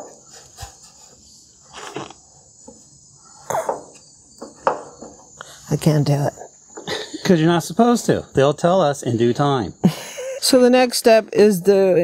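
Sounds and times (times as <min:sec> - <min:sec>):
high-pitched insect chorus: 0:00.0 - 0:12.0
soft knocks: 0:03.5 - 0:05.3.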